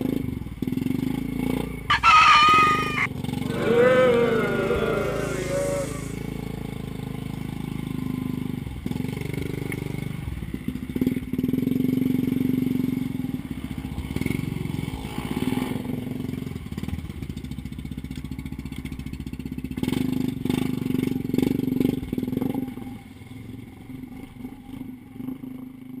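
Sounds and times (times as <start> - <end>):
atv engine revving: 1.9 - 6.4.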